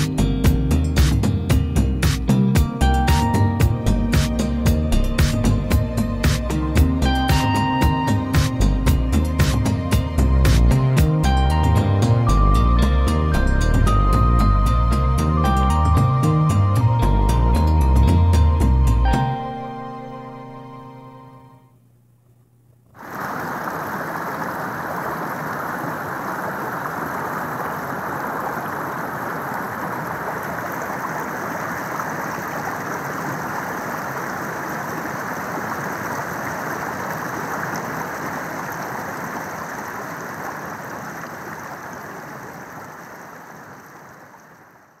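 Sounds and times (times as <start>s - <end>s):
stream running over rocks: 23.0s - 45.0s.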